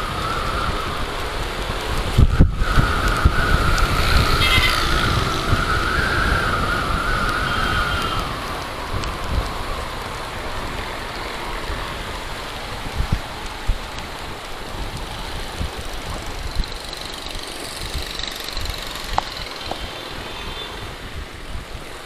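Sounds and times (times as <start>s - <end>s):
wind rushing over microphone: 0.0s - 22.0s
motorcycle engine cruising: 2.2s - 8.4s, 14.9s - 20.2s.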